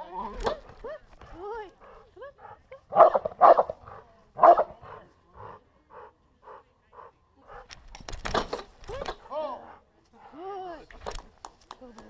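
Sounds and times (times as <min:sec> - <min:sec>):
dog barking: 0:02.9 - 0:05.0.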